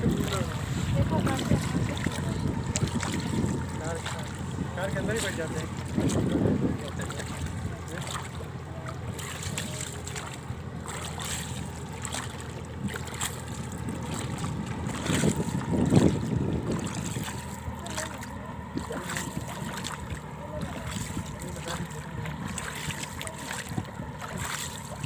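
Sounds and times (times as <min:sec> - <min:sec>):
wind noise on microphone: 0:00.0 - 0:05.2, 0:05.8 - 0:07.1, 0:14.1 - 0:17.6
water splashing against boat hull: 0:00.0 - 0:25.0.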